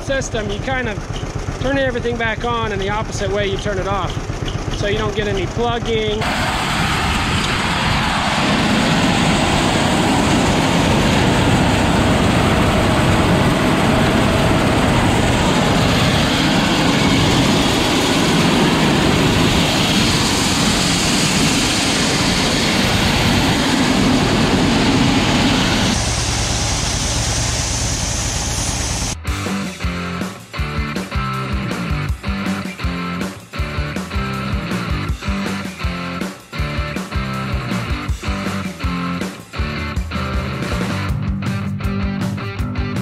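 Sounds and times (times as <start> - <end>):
tractor engine running: 0.0 - 30.0.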